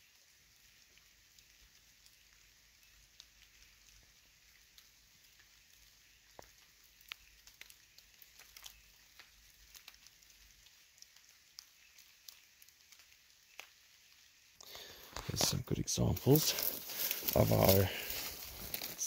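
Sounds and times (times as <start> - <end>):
faint ticks and crackles: 0.0 - 19.0
faint high hiss: 13.4 - 19.0.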